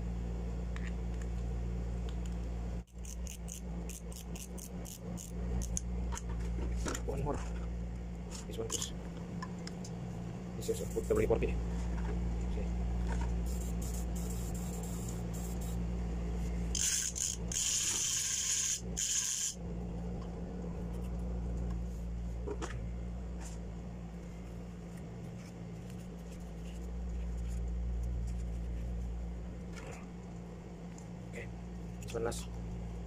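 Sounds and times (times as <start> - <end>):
metal parts rubbing and clicking: 2.9 - 5.8, 16.7 - 19.6
aerosol spray can hissing: 13.5 - 15.8, 16.8 - 19.6.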